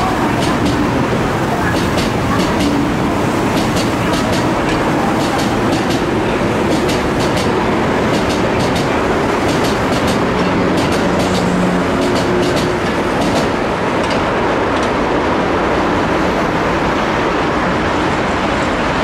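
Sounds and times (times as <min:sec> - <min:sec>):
wheels clicking over rail joints: 0:00.0 - 0:15.0
train rumbling past: 0:00.0 - 0:19.0.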